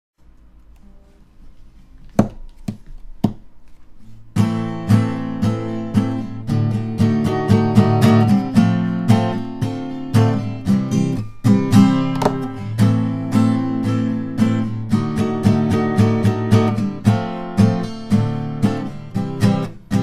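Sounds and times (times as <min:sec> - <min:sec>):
sharp taps: 0:02.1 - 0:03.5
acoustic guitar strumming: 0:04.0 - 0:20.0.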